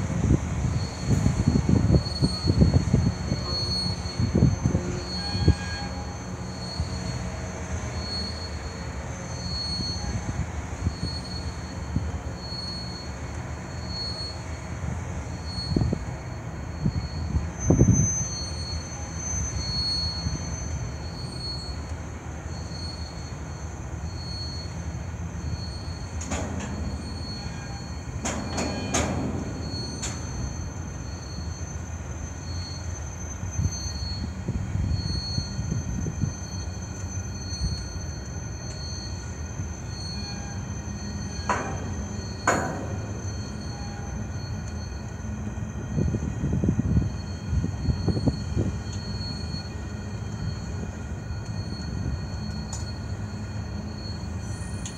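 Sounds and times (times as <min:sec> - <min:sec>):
train wheels rumbling on rail: 0:00.0 - 0:54.9
high wheel squeal: 0:00.1 - 0:54.9
loud clunks: 0:26.2 - 0:30.8, 0:41.5 - 0:43.5.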